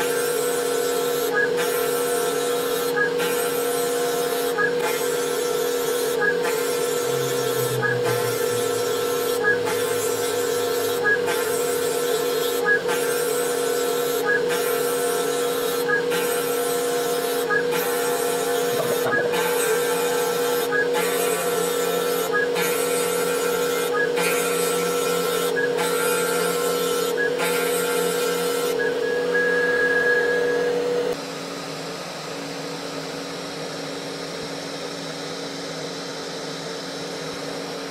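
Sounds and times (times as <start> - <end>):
mill spindle cutting wood: 0.0 - 31.2.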